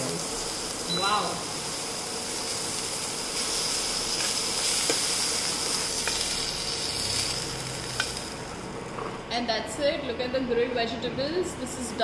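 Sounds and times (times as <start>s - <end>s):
mushrooms sizzling in pan: 0.0s - 9.0s.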